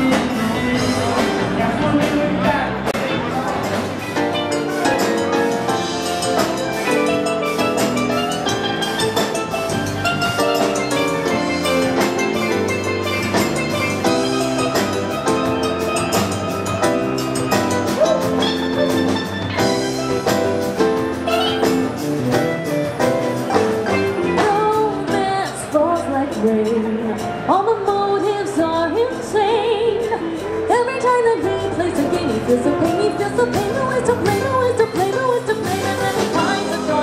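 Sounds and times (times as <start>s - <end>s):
live band playing: 0.0s - 37.0s
steel pan melody: 4.0s - 25.0s.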